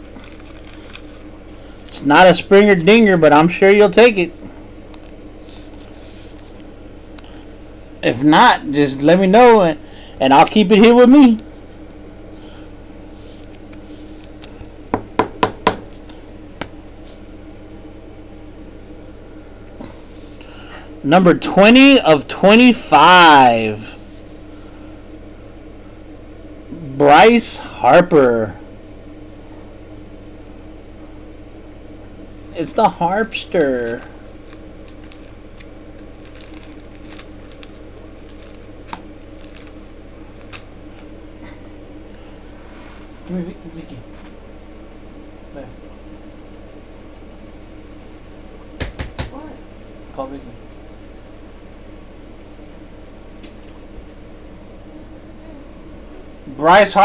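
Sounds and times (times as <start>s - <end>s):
low room hum: 0.0s - 57.0s
sharp knocks on table: 48.8s - 49.3s.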